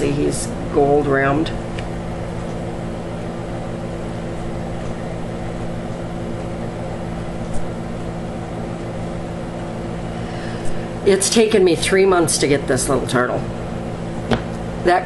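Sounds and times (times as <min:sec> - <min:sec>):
steady mechanical hum: 0:00.0 - 0:15.0.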